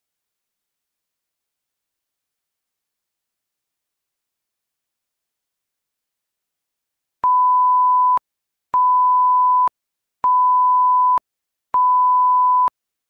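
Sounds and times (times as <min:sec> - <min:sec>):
electronic beep tone: 0:11.8 - 0:12.8.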